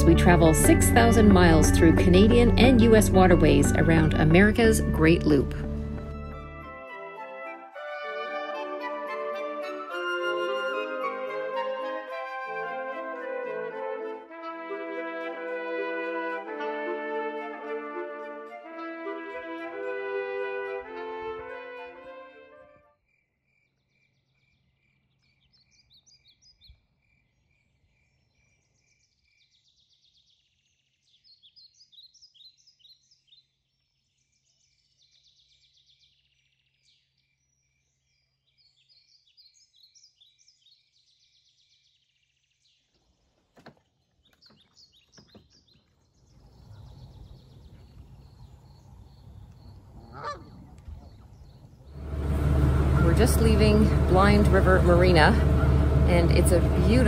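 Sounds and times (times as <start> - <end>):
small birds chirping: 23.5 - 53.1
geese honking: 49.9 - 51.2, 52.0 - 57.0.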